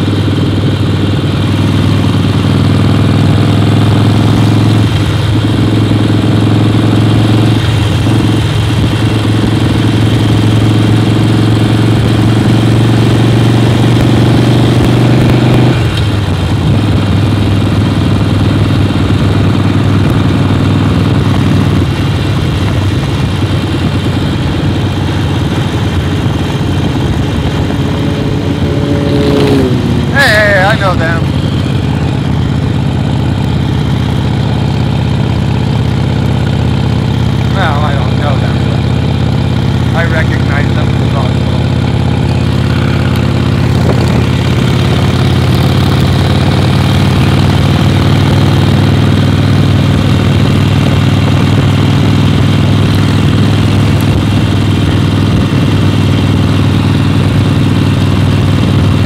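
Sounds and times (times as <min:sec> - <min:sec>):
motorcycle engine running: 0:00.0 - 0:59.0
even rushing noise: 0:25.2 - 0:33.7.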